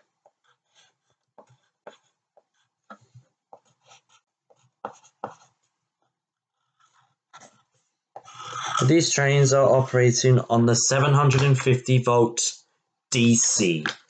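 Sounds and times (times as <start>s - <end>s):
pencil scratching on paper: 0.0s - 8.9s.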